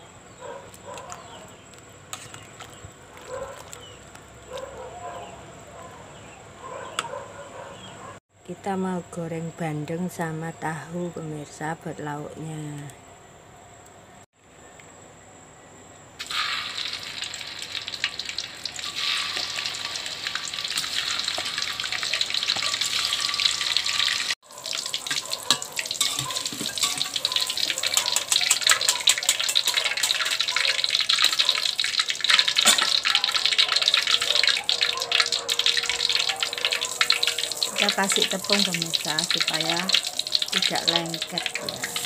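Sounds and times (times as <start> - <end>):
oil popping and spattering: 16.2 - 42.0
tofu sizzling in hot oil: 16.2 - 42.0.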